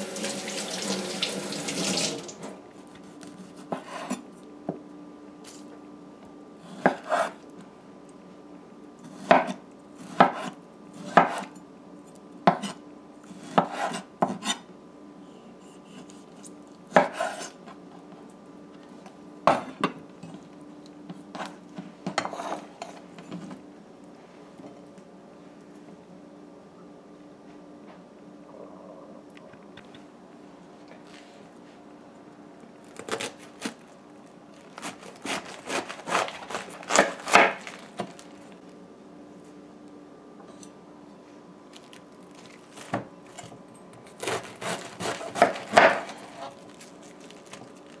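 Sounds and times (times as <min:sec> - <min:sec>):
faint steady hum: 0:00.0 - 0:48.0
knife cutting on wooden board: 0:06.7 - 0:07.4, 0:12.5 - 0:14.6, 0:17.0 - 0:17.6.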